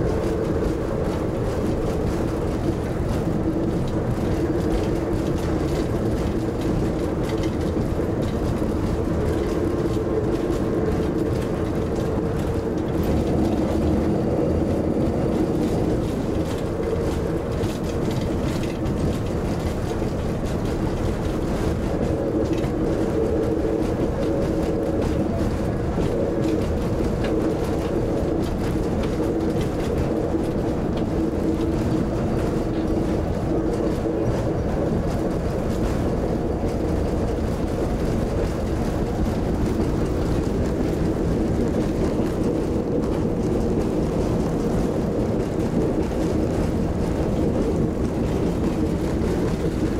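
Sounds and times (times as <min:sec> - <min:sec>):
diesel engine drone: 0:00.0 - 0:49.9
wheels rumbling on track: 0:00.0 - 0:49.9.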